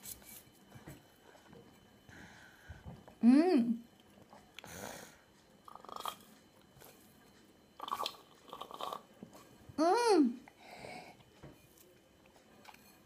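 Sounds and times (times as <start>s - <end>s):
person humming: 3.2s - 3.8s.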